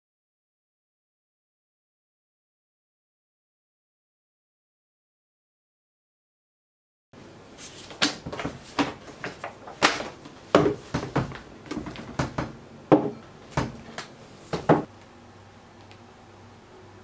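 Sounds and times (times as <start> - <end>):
paper pages rustling: 7.6 - 10.2
books knocking on wooden desk: 7.8 - 14.9.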